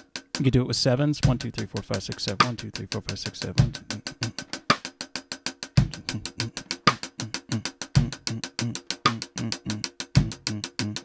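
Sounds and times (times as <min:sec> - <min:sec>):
snare drum strokes: 0:01.2 - 0:08.0, 0:08.9 - 0:09.4.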